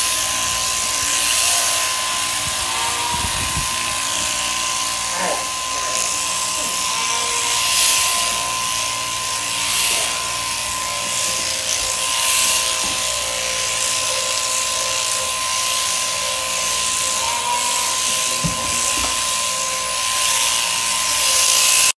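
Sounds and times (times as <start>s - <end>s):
sheep shearing handpiece whining: 0.0s - 21.9s.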